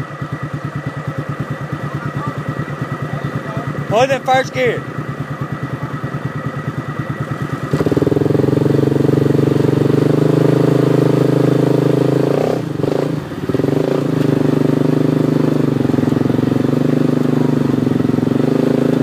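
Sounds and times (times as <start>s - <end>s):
vehicle engine revving: 0.0s - 19.0s.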